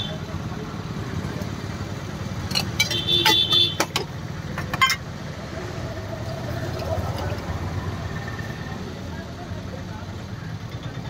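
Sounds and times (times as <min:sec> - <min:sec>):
road traffic rumble: 0:00.0 - 0:11.0
steel cups and lids clinking: 0:02.4 - 0:05.1, 0:06.5 - 0:07.6.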